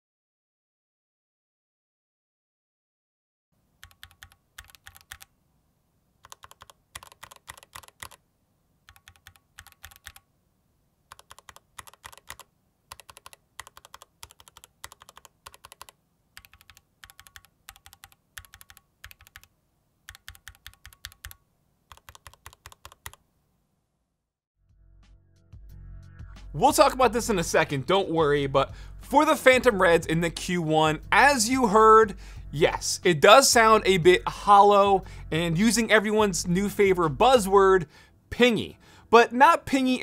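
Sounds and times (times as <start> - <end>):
mechanical keyboard typing: 3.8 - 5.3, 6.2 - 8.2, 8.9 - 10.2, 11.1 - 19.5, 20.1 - 23.2.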